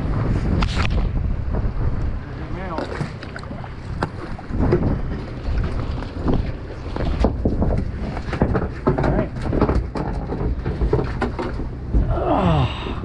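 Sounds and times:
wind rumble on microphone: 0:00.0 - 0:13.0
fishing gear knocking and clattering: 0:02.8 - 0:12.1.

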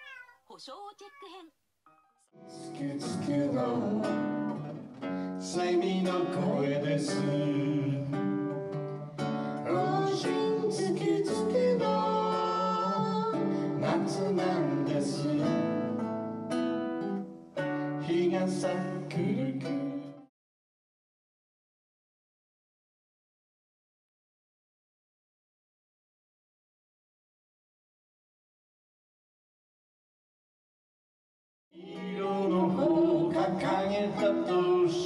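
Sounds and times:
person singing: 0:02.4 - 0:08.4, 0:09.4 - 0:16.0, 0:17.9 - 0:20.3, 0:31.8 - 0:35.0
acoustic guitar strummed: 0:02.4 - 0:20.1.

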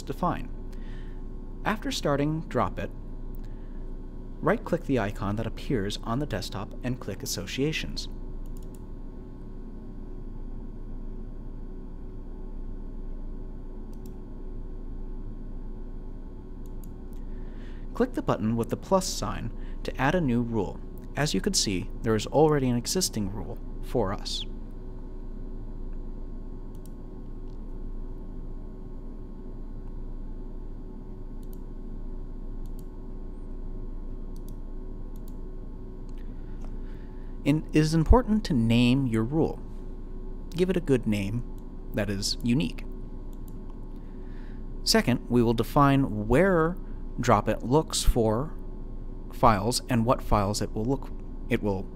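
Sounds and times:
electrical hum and hiss: 0:00.0 - 0:51.9
computer mouse clicking: 0:08.4 - 0:08.8, 0:13.9 - 0:14.2, 0:26.7 - 0:27.6, 0:32.6 - 0:32.9, 0:34.3 - 0:35.4.

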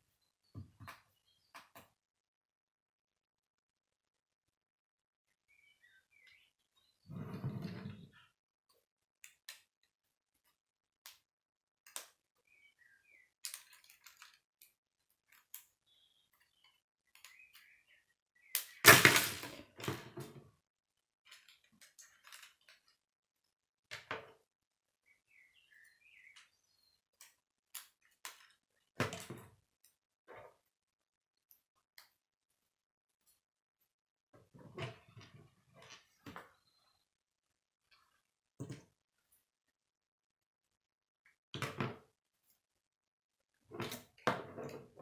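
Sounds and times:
plastic pieces clicking and rattling: 0:13.4 - 0:15.7.

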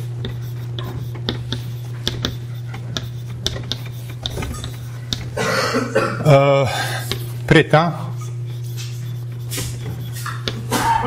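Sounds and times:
chalk tapping and scratching: 0:00.0 - 0:05.4, 0:07.0 - 0:07.4, 0:08.1 - 0:10.8
low room hum: 0:00.0 - 0:11.0.

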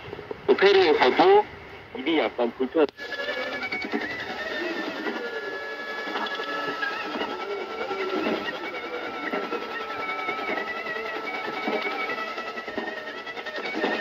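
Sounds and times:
radio static hiss: 0:00.0 - 0:10.6
high wavering whistle: 0:03.0 - 0:14.0
steady interference whistle: 0:03.0 - 0:14.0.

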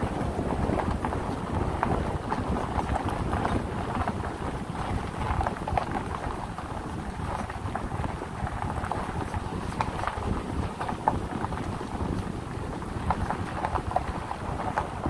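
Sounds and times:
small irregular crackles: 0:00.0 - 0:15.0
tyre and engine noise: 0:00.0 - 0:15.0
wind rumbling on microphone: 0:00.0 - 0:15.0.

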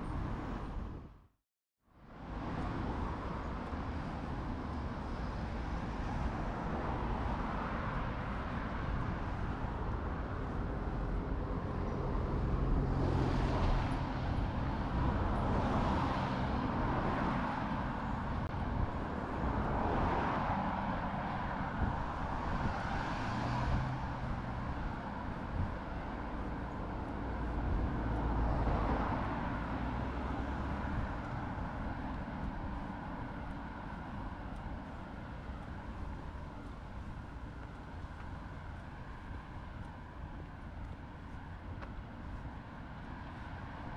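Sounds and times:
vehicles passing: 0:02.0 - 0:43.9.

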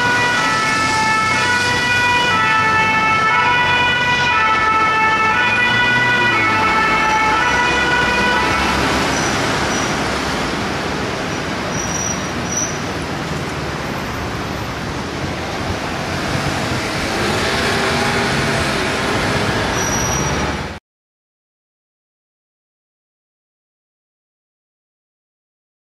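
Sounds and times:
two-tone fire engine siren: 0:00.0 - 0:10.3
city traffic noise: 0:00.0 - 0:20.8.

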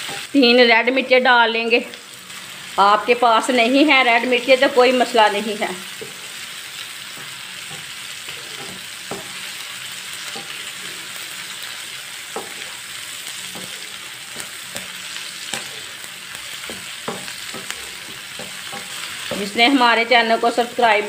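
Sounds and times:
vegetables sizzling in hot oil: 0:00.0 - 0:21.0
spatula scraping and tapping pan: 0:06.0 - 0:06.3, 0:07.1 - 0:09.6, 0:10.2 - 0:10.9, 0:12.3 - 0:19.7.

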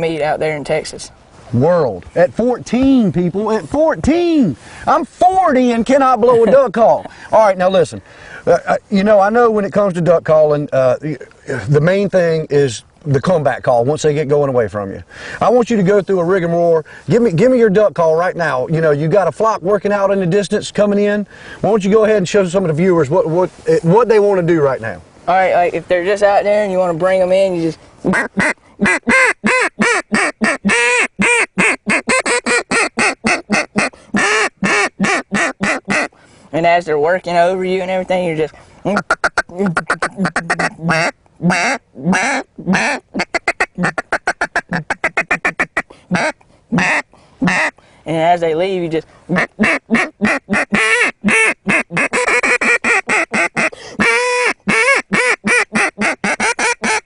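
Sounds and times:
duck call quacks: 0:28.0 - 0:36.2, 0:38.9 - 0:47.8, 0:49.3 - 0:57.0.

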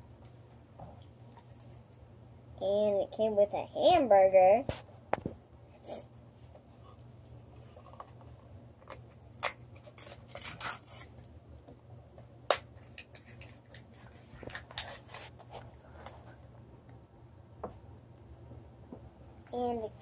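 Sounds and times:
plastic packaging rustling: 0:12.8 - 0:16.4.

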